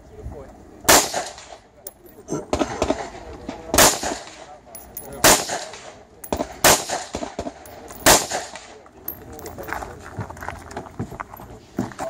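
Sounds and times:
rifle shots with echo: 0:00.9 - 0:01.5, 0:03.8 - 0:08.7.

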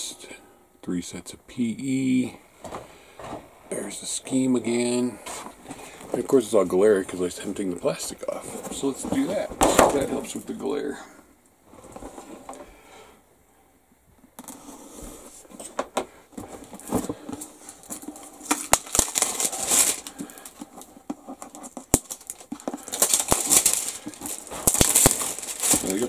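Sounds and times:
plastic wrap crinkling: 0:04.7 - 0:10.6, 0:16.4 - 0:26.0.

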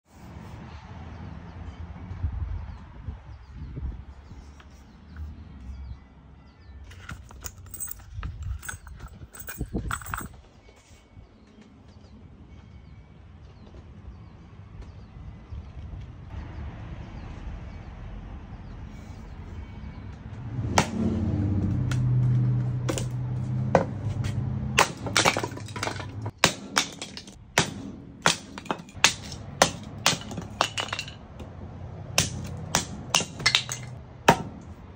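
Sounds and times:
hatchet chopping wood: 0:20.7 - 0:21.1, 0:24.8 - 0:31.0, 0:32.2 - 0:34.7.

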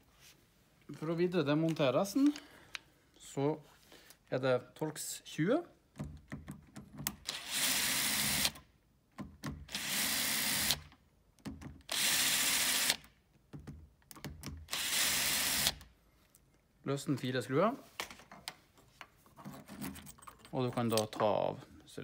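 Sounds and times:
cordless drill running: 0:07.3 - 0:08.6, 0:09.7 - 0:10.9, 0:11.9 - 0:13.0, 0:14.7 - 0:15.8.

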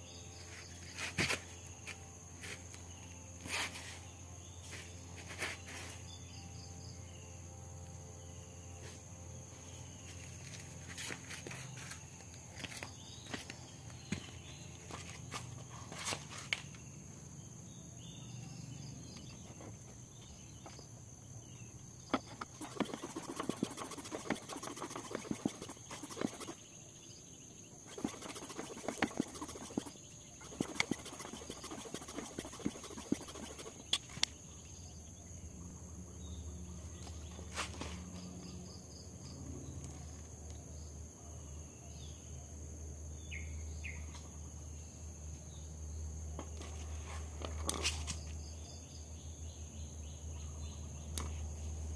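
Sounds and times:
insects droning: 0:00.0 - 0:51.9
hand tyre pump strokes: 0:22.1 - 0:26.7, 0:27.8 - 0:34.1.

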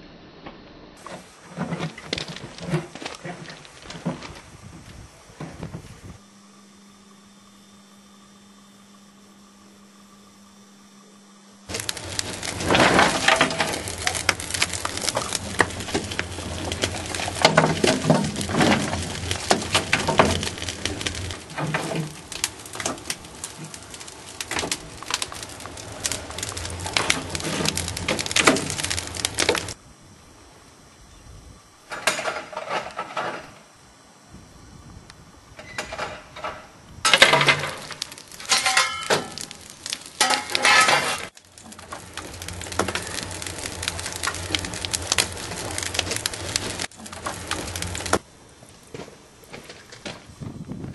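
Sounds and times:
wood fire crackling and popping: 0:01.0 - 0:06.2, 0:11.7 - 0:29.8, 0:35.0 - 0:50.9.

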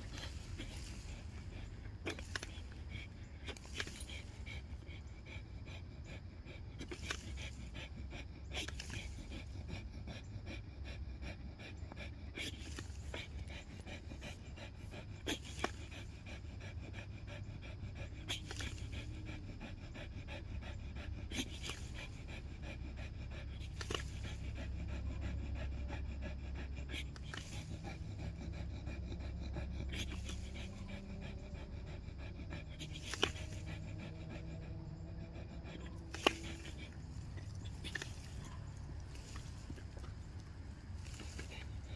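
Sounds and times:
dog panting: 0:00.0 - 0:41.9
low rumble: 0:15.8 - 0:41.9.

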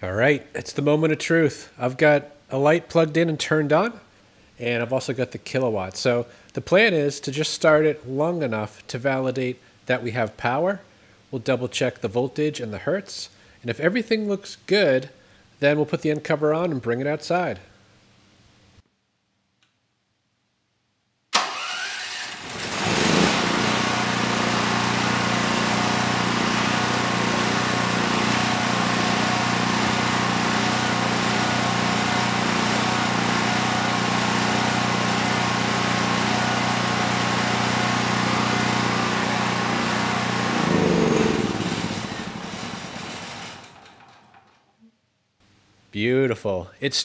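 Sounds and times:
generator engine running: 0:21.4 - 0:44.4
electric starter cranking engine: 0:21.4 - 0:44.6.

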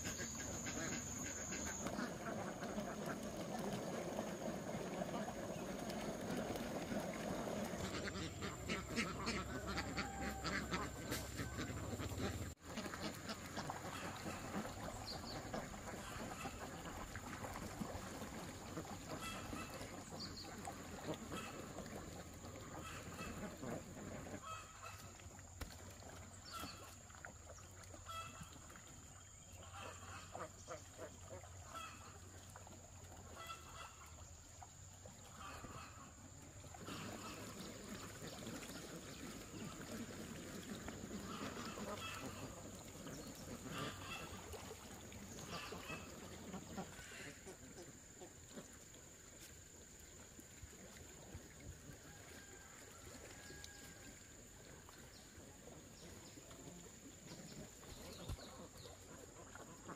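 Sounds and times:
ducks quacking: 0:00.0 - 0:25.2, 0:29.5 - 0:32.6, 0:33.2 - 0:34.2, 0:35.1 - 0:48.9, 0:55.6 - 0:59.9.

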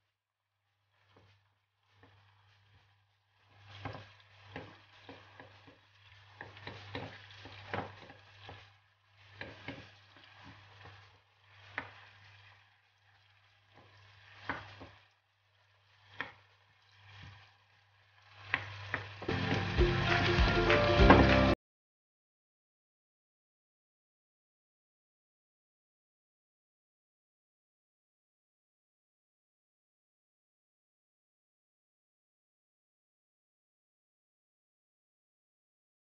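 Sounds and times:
vegetables sauteing in oil: 0:00.7 - 0:21.6
wooden spoon scraping pan: 0:00.8 - 0:21.6
spoon tapping pan: 0:03.8 - 0:11.0
music: 0:19.3 - 0:21.6.

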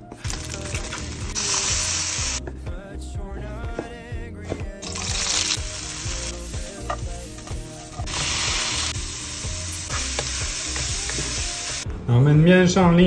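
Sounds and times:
meat sizzling in a wok: 0:00.2 - 0:02.4, 0:04.8 - 0:11.8.

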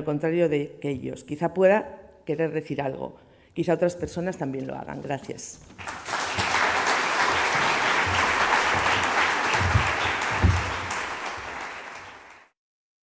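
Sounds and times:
audience applauding: 0:05.8 - 0:12.6.

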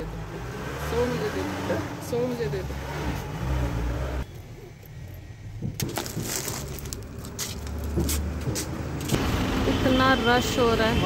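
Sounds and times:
plastic bag crinkling: 0:05.8 - 0:08.0.

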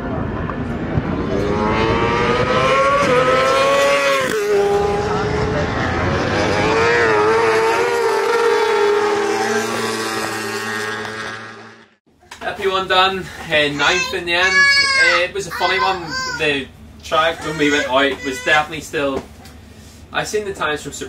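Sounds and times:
motorcycle engines revving high: 0:00.0 - 0:12.0.

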